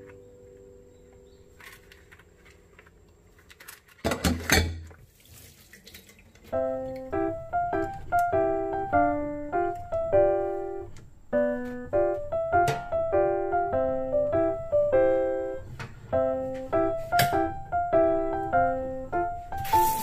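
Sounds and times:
piano melody: 0:00.0 - 0:01.6, 0:06.4 - 0:20.0.

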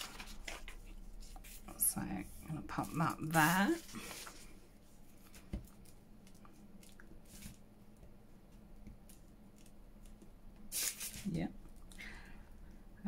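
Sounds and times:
paper rustles: 0:00.0 - 0:01.8, 0:02.7 - 0:06.5.

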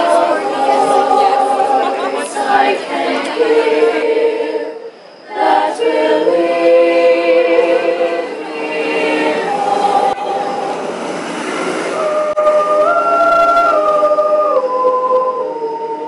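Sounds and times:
a cappella choir singing: 0:00.0 - 0:16.0.

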